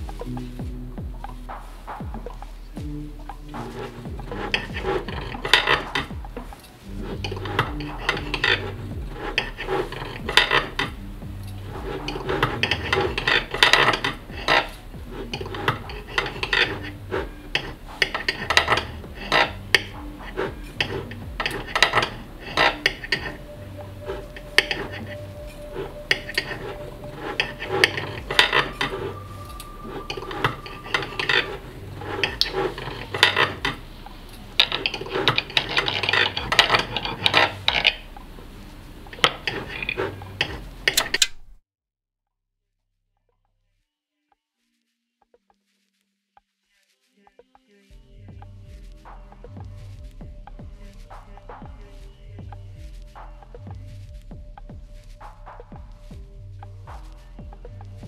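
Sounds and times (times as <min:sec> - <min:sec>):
cutlery scraping and clinking: 0:03.6 - 0:10.8, 0:11.9 - 0:23.4, 0:24.0 - 0:33.8, 0:34.6 - 0:38.0, 0:39.1 - 0:41.4.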